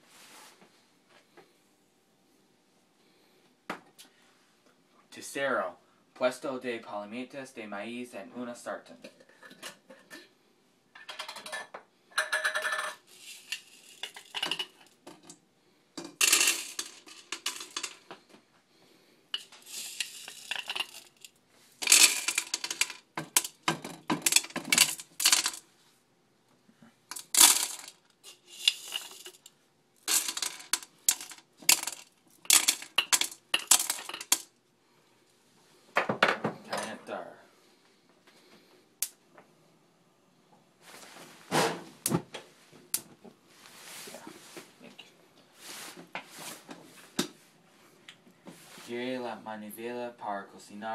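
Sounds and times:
kernels rattling in metal pot: 12.2 - 15.3, 16.0 - 18.0, 19.4 - 25.6, 27.1 - 34.5.

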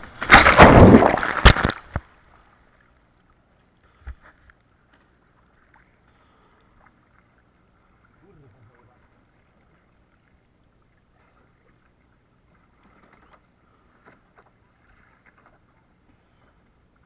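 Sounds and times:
small splashes and knocks: 0.0 - 2.8, 11.1 - 16.4
water lapping against board: 11.0 - 17.0.

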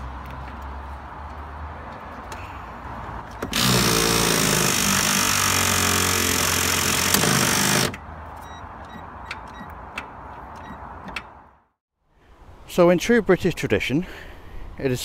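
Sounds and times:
power ratchet motor running: 3.5 - 8.0.

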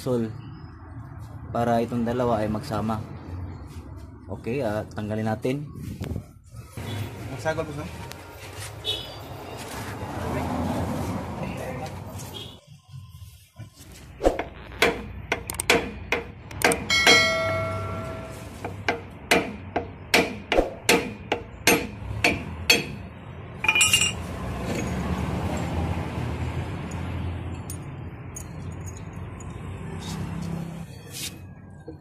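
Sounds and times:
metallic clink: 23.6 - 25.0, 26.8 - 29.6.

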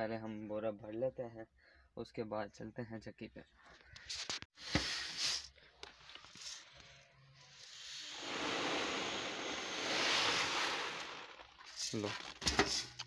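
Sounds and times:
grain pouring into sack: 7.6 - 12.4
sack rustling: 8.1 - 12.4.

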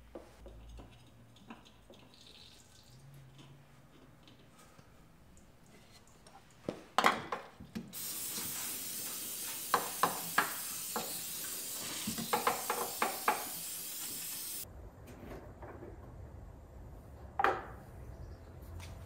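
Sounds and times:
steady hiss: 8.0 - 14.6.

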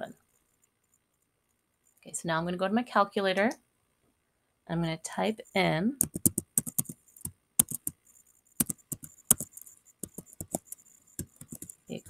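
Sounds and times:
computer keys typing: 5.4 - 12.0.

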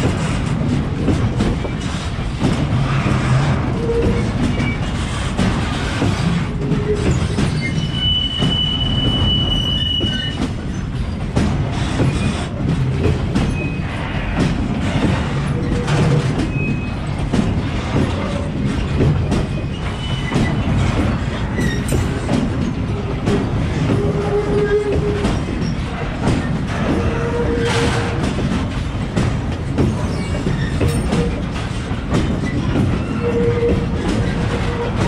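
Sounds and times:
train wheels clattering over rail joints: 0.0 - 35.0
high wheel squeal: 7.0 - 10.4.

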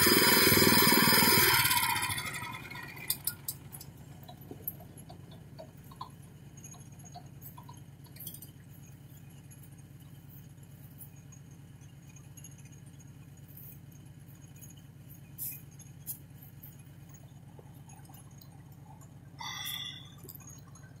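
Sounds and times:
small engine idling: 0.0 - 21.0
wavering squeak: 19.4 - 20.3.

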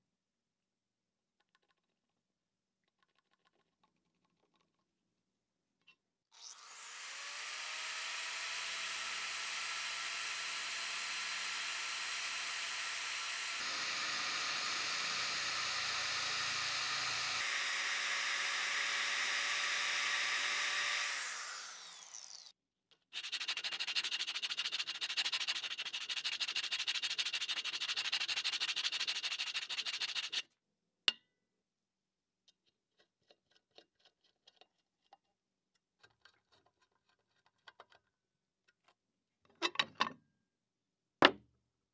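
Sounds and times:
electric drill boring into wood: 6.3 - 22.6
sandpaper rasping on wood: 23.2 - 30.4.

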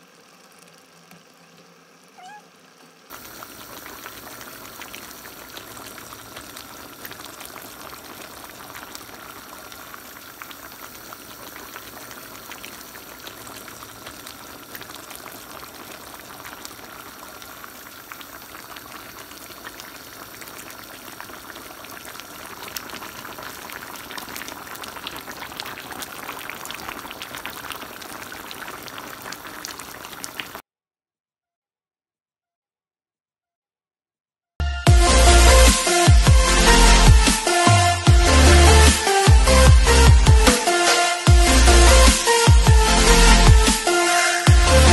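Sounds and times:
stew bubbling and popping: 0.0 - 2.5, 3.1 - 30.6, 34.9 - 44.9.

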